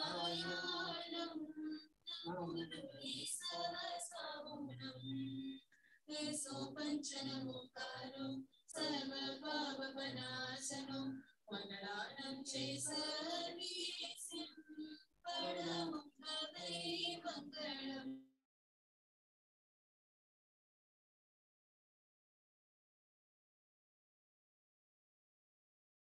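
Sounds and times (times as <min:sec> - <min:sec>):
person singing prayer song: 0:00.0 - 0:18.2.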